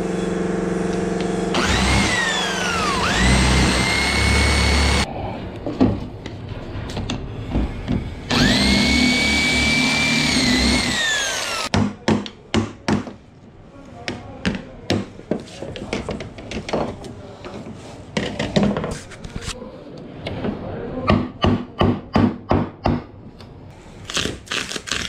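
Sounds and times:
electric drill boring into wood: 1.5s - 5.1s, 8.3s - 11.7s.

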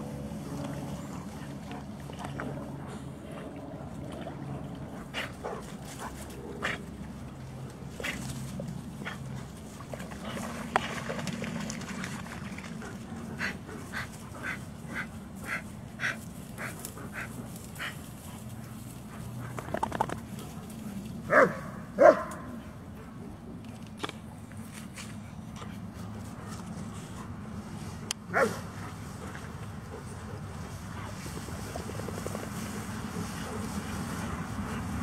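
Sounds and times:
dog barking: 21.3s - 22.5s, 28.3s - 28.6s.

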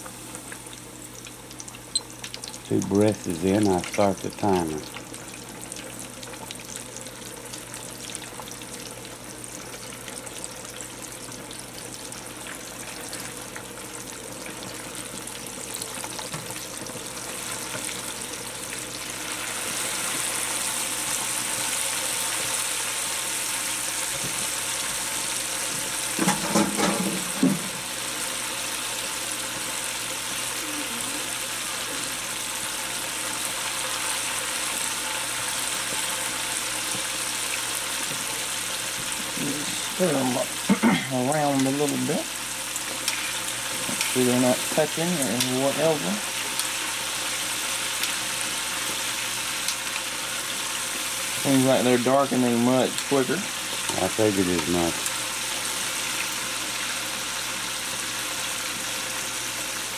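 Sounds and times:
chicken sizzling in hot oil: 0.0s - 59.9s.

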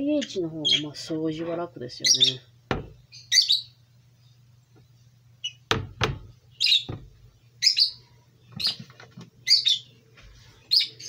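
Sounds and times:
small bird chirping: 0.1s - 1.0s, 2.0s - 5.7s, 6.5s - 10.0s, 10.6s - 11.0s
sharp knocks: 2.7s - 3.0s, 5.7s - 7.2s.

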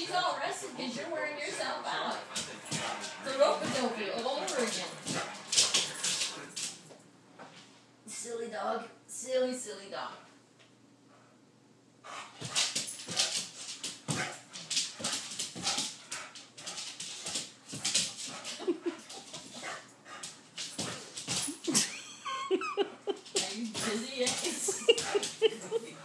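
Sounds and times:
dog claws clicking on wood floor: 12.4s - 21.9s, 23.3s - 25.8s.

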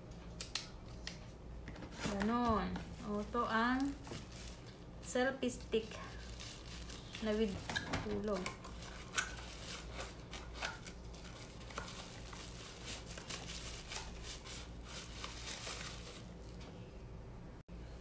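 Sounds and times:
plastic packaging crinkling: 2.9s - 4.9s, 5.5s - 16.6s.

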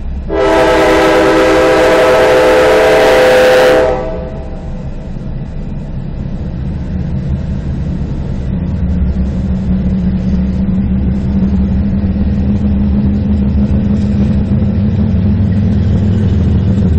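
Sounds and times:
diesel locomotives passing: 0.0s - 16.9s
steady low hum: 4.0s - 16.9s.

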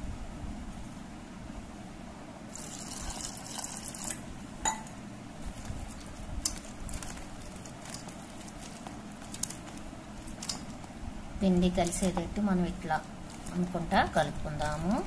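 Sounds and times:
hand squishing wet batter: 5.4s - 15.0s.

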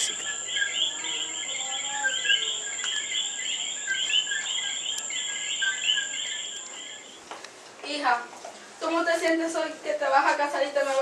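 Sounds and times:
frogs two-note chirps: 0.0s - 7.2s
high-pitched insect trill: 0.0s - 7.2s.

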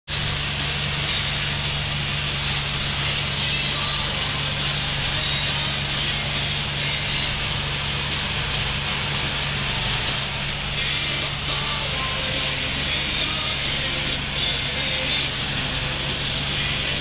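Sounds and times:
tractor engine drone: 0.0s - 17.0s.

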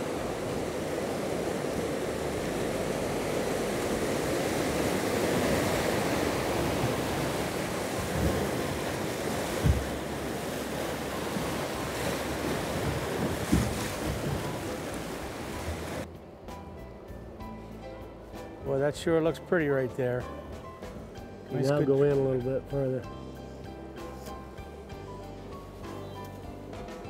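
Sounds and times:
whitewater rushing: 0.0s - 16.1s
wind buffeting microphone: 0.0s - 16.1s.

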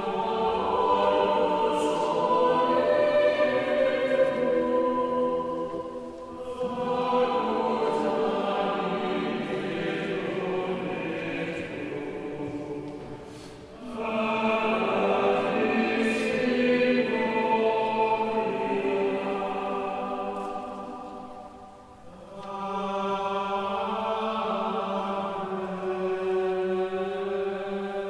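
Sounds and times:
choir singing a sacred chant: 0.0s - 28.0s.

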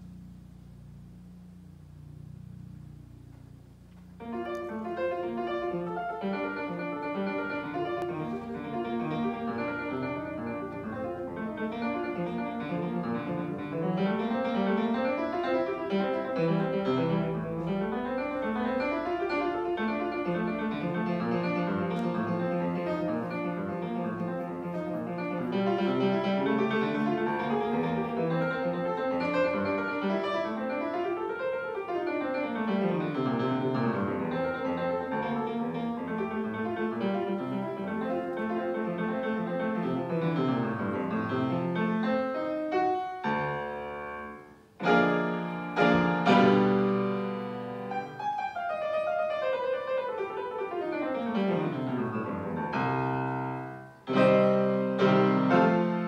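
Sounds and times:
grand piano piece: 0.0s - 56.0s.

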